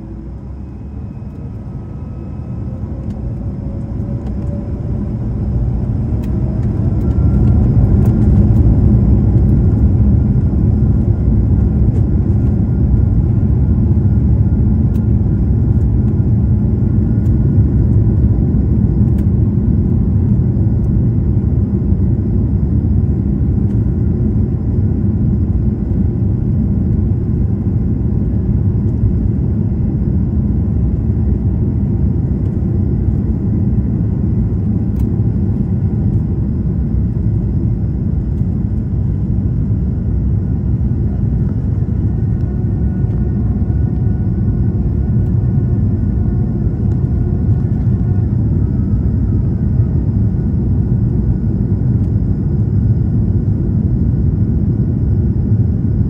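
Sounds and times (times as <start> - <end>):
jet engines spooling up: 0.0 - 13.0.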